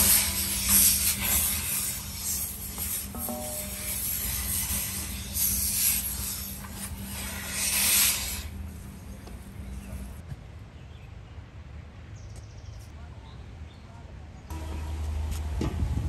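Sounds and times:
hissing noise: 0.0s - 10.2s.

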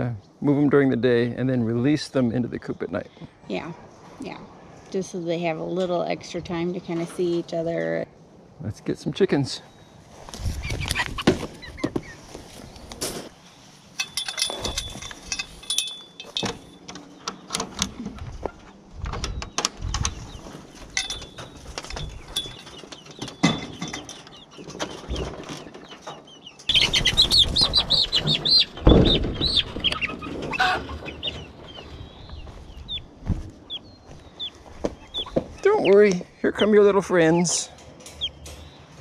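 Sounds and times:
chickens clucking: 9.4s - 13.3s, 17.0s - 19.0s, 19.7s - 39.0s
chickens squawking: 10.2s - 12.9s, 24.0s - 39.0s
knocks and rattles of handling: 13.9s - 26.7s
wings flapping: 26.7s - 32.0s.

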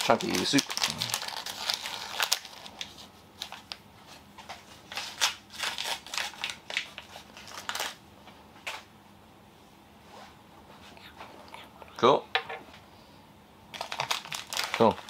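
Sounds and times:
plastic packaging crinkling: 0.0s - 3.8s, 4.4s - 8.0s, 13.7s - 15.0s.

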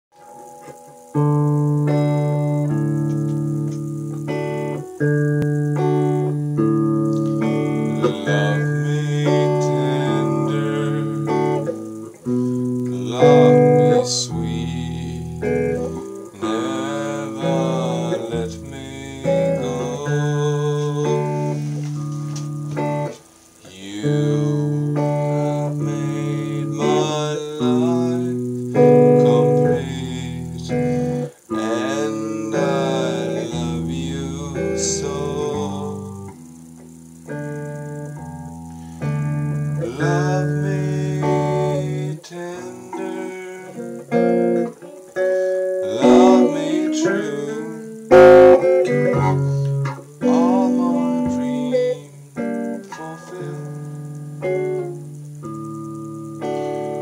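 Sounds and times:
man singing: 7.4s - 22.1s, 23.0s - 36.4s, 39.8s - 54.8s.

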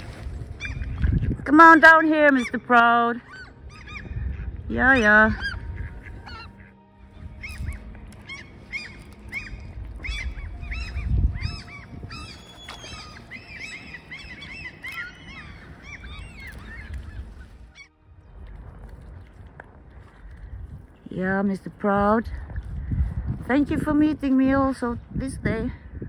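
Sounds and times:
birds calling: 0.0s - 18.7s.

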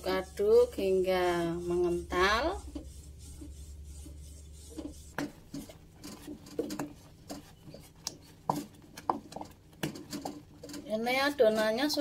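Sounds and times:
wooden spatula knocking a pot: 4.8s - 10.7s
thick batter plopping and popping: 4.8s - 10.8s.

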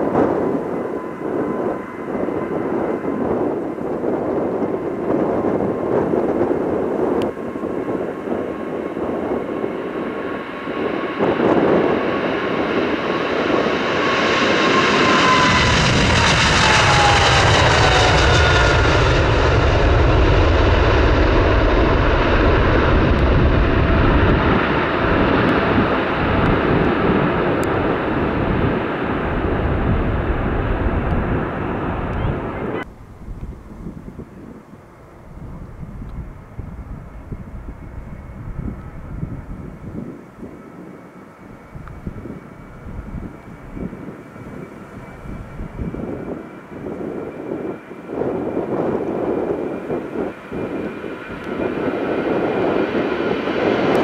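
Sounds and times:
deep jet rumble: 0.0s - 54.0s
jet engines whining: 0.0s - 54.0s.

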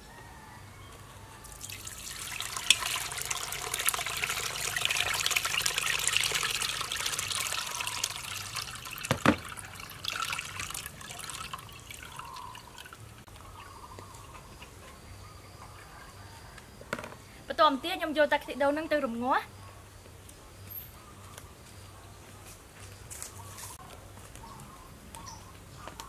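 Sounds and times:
liquid pouring into metal pot: 1.5s - 13.2s.

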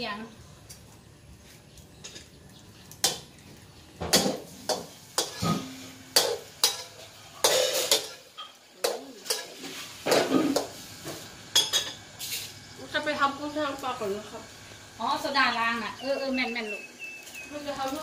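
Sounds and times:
metal spatula scraping wok: 4.1s - 10.8s, 11.5s - 12.6s.

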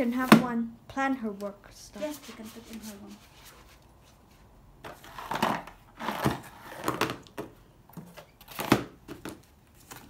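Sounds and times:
paper and cardboard rustling: 1.9s - 7.2s.

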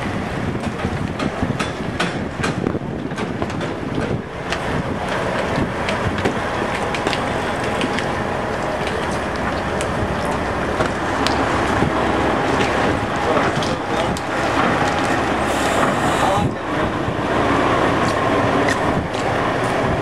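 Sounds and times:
trucks rumbling over panels: 0.1s - 20.0s.

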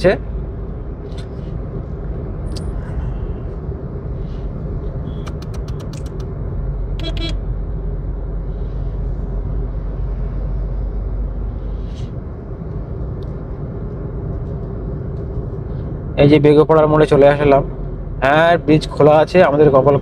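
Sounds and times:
car interior road rumble: 0.0s - 20.0s
quick run of clicks: 5.2s - 6.3s.

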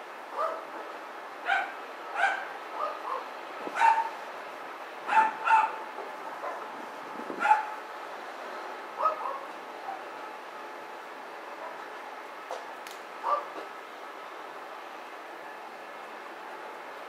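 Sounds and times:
dog barking: 0.4s - 0.6s, 1.5s - 3.2s, 3.8s - 4.1s, 5.1s - 5.8s, 7.4s - 7.8s, 9.0s - 9.5s, 13.3s - 13.5s.

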